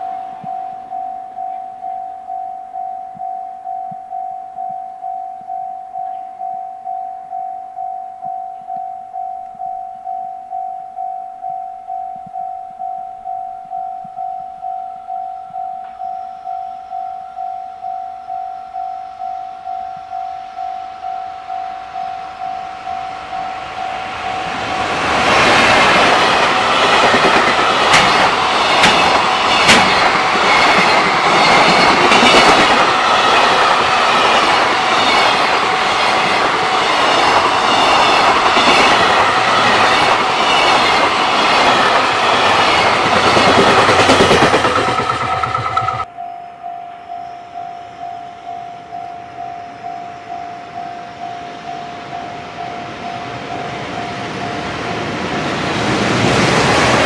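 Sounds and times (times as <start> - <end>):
level crossing bell ringing: 0.0 - 24.8
freight train wheels clattering: 23.6 - 46.1.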